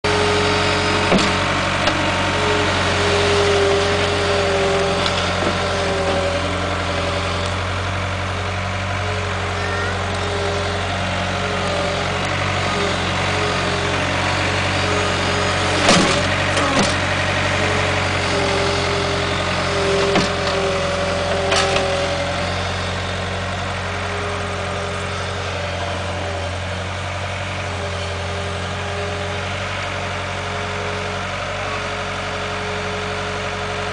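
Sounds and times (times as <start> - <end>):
diesel engine running: 0.0 - 33.9
sharp knocks: 1.1 - 2.0.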